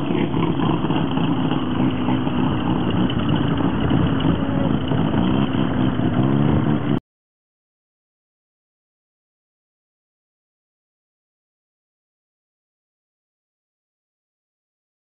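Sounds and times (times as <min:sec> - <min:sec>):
rotary aircraft engine running: 0:00.0 - 0:07.0.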